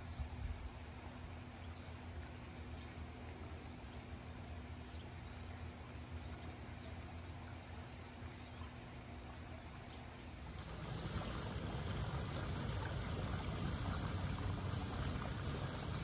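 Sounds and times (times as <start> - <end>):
low hum: 10.3 - 16.0.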